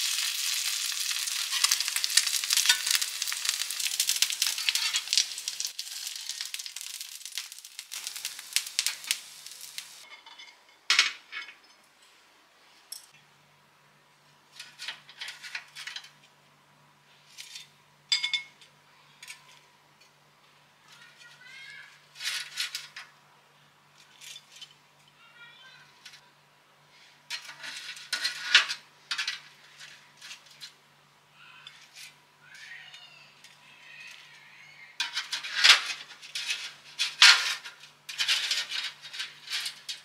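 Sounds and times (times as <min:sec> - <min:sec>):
fritters sizzling in oil: 0:00.0 - 0:10.1.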